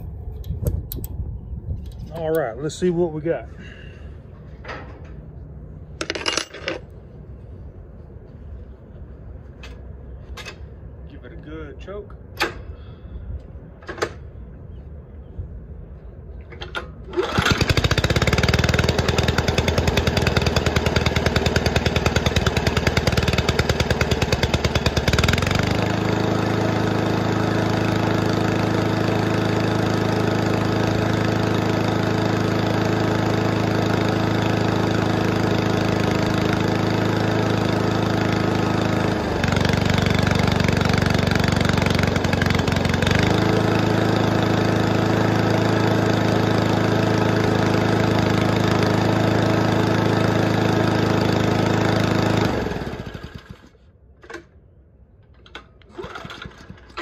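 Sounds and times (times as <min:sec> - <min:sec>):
lawn mower engine pull-started: 0:03.7 - 0:06.9, 0:13.8 - 0:14.3, 0:16.4 - 0:57.0
lawn mower engine running: 0:16.4 - 0:57.0.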